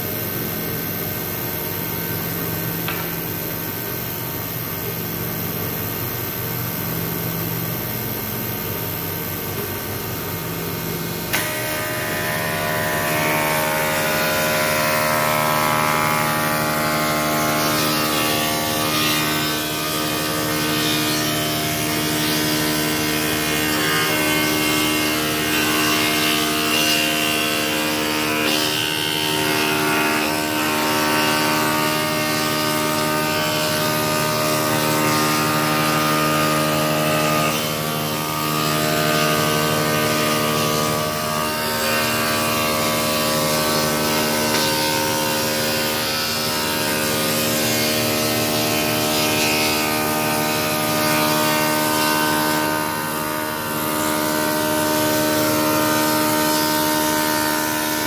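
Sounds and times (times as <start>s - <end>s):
wooden board fed past cutter: 11.3s - 58.0s.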